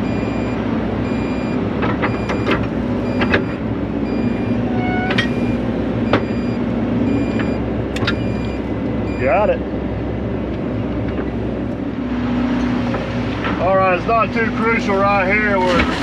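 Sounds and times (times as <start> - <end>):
high electronic beeps: 0.0 - 9.4
diesel engine running: 0.0 - 16.0.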